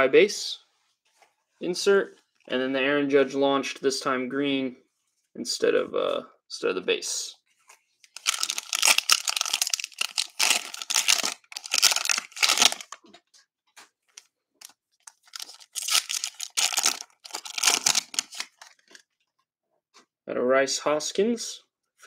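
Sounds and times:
cellophane tearing and crinkling: 8.1 - 13.0, 15.0 - 19.0.

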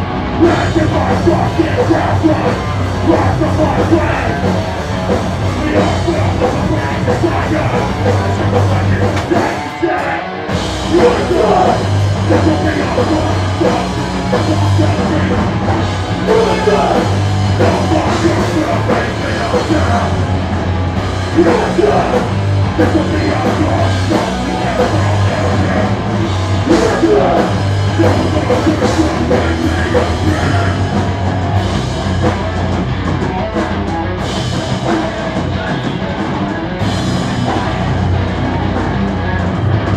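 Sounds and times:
punk band playing: 0.0 - 39.9
singer shouting: 5.4 - 15.6, 16.2 - 20.3, 21.3 - 31.2.

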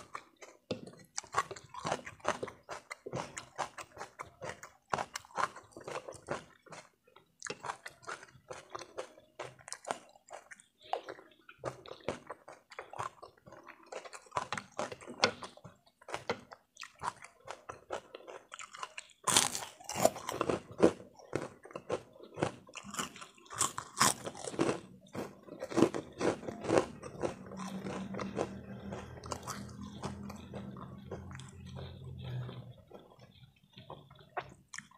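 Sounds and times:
chewing with mouth clicks: 0.0 - 34.9
crisp cracker crunching: 17.9 - 31.8.

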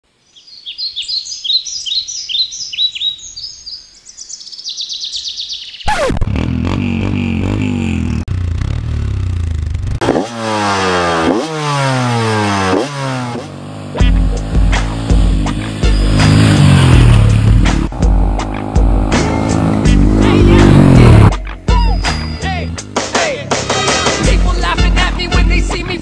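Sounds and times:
songbirds chirping: 0.0 - 6.0
motorcycle engine revving: 5.8 - 26.0.

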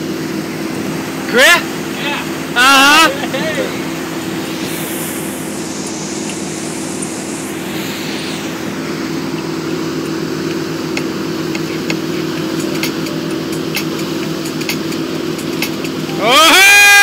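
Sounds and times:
churning wake water: 0.0 - 5.2, 8.4 - 17.0
boat engine running: 0.0 - 16.8.

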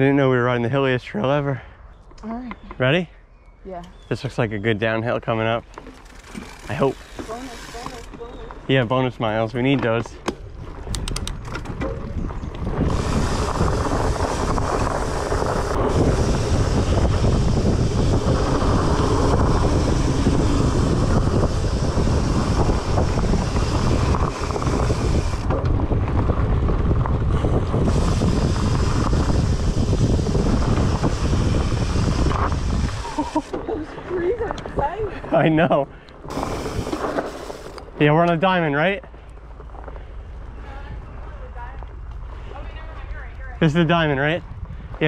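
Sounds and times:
bike knocking and rattling: 5.6 - 8.7, 9.6 - 35.4, 36.2 - 38.4
wind rushing over microphone: 7.6 - 38.6, 40.0 - 45.0.

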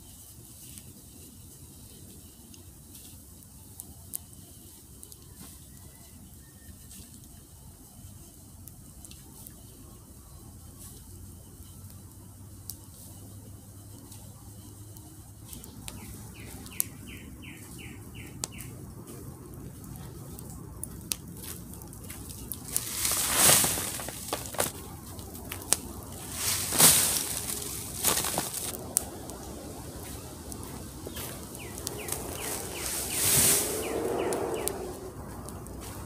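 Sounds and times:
dry leaves rustling and crunching: 13.0 - 36.0
high chirps: 25.9 - 35.0.

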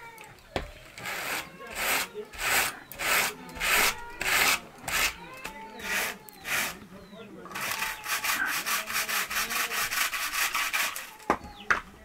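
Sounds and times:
hand card rasping wool: 1.0 - 5.2, 5.8 - 6.8, 7.5 - 11.1.

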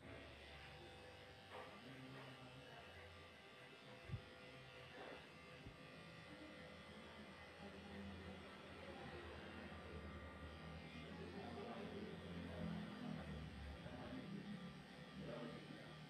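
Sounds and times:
electric clippers buzzing: 8.3 - 13.1.

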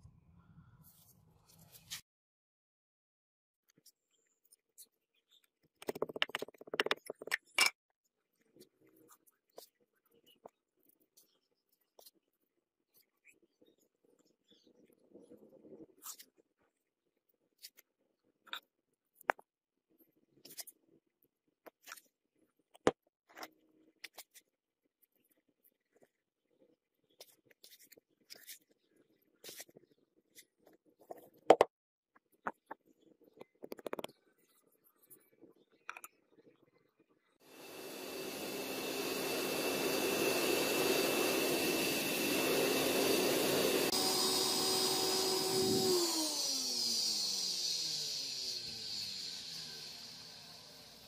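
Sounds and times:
electric air blower whining: 37.5 - 51.0.

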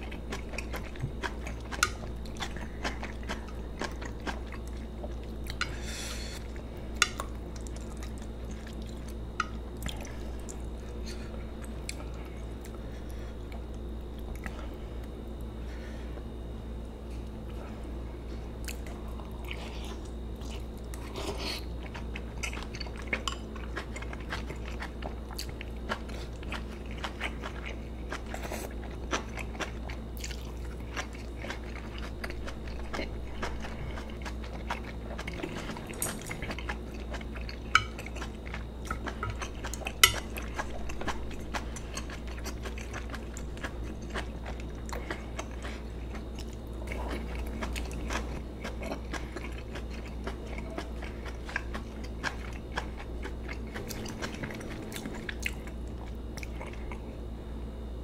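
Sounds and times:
wet chewing sounds: 0.0 - 15.5, 18.6 - 57.2
steady low hum: 0.0 - 58.0.

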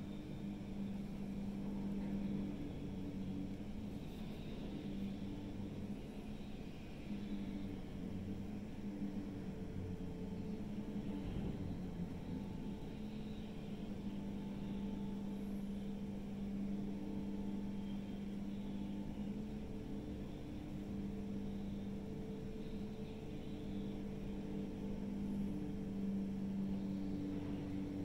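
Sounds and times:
heavy diesel machinery drone: 17.4 - 28.0.

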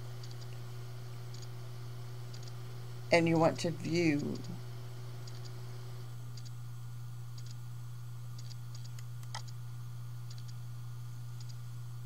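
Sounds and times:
low electrical hum: 0.0 - 12.0
faint ticks: 0.2 - 0.6, 2.3 - 2.6, 5.2 - 5.6, 6.4 - 6.6, 7.3 - 7.6, 8.4 - 9.6, 10.2 - 10.6, 11.4 - 11.6.

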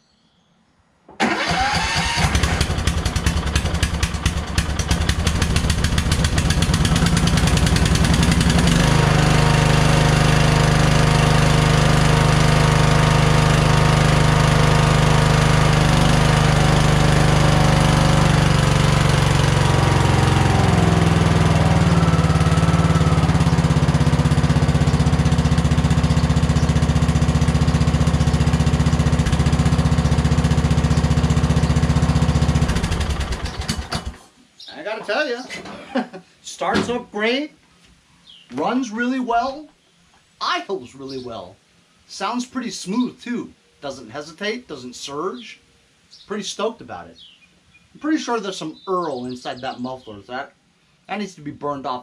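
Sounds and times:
lawn tractor engine running: 1.2 - 34.2.

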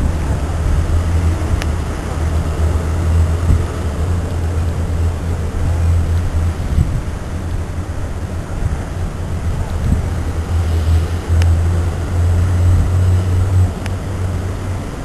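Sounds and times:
steady low rumble: 0.0 - 15.0
faint clicks: 10.6 - 11.6.

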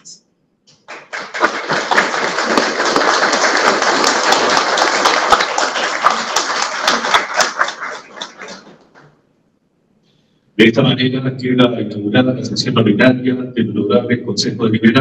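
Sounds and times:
people clapping: 0.7 - 9.2.

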